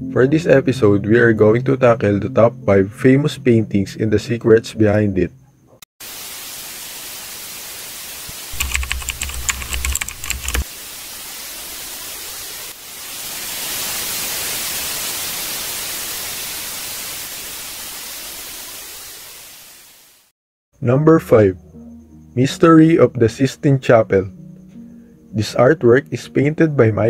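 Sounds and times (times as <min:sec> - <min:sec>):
tv static hiss: 0:06.0 - 0:20.3
keyboard typing clicks: 0:08.6 - 0:10.6.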